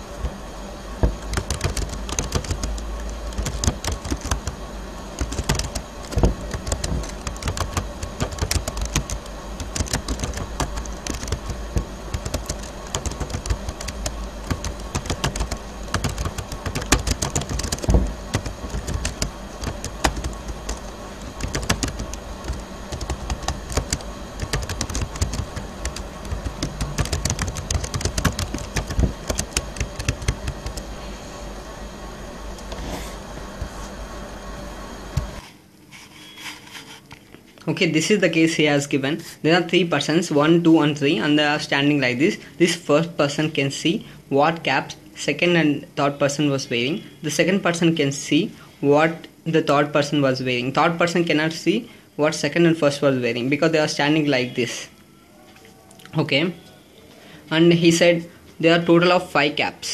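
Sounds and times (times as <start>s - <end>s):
low steady hum: 0.0s - 59.9s
keyboard typing clicks: 1.0s - 4.6s, 5.2s - 30.8s.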